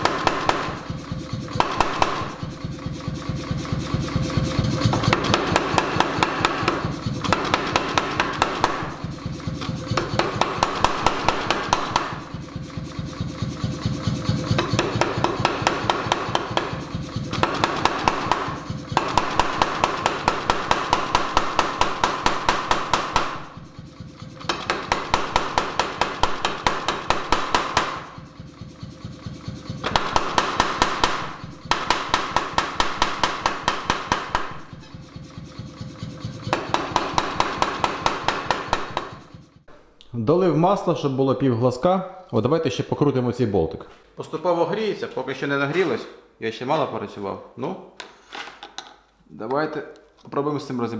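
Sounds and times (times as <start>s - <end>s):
power hammer striking steel: 0.0s - 39.8s.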